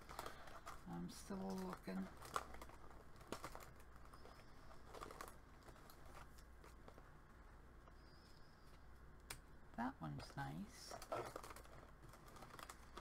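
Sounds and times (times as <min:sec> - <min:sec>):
low room hum: 0:00.0 - 0:13.0
paper stickers rustling: 0:10.2 - 0:13.0.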